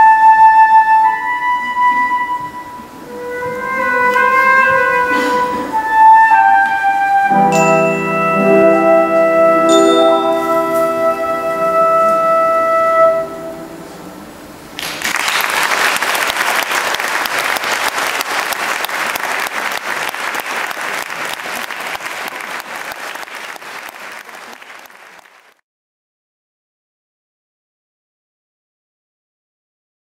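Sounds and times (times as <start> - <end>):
held music chord: 1.7 - 14.7
audience applause: 14.8 - 25.6.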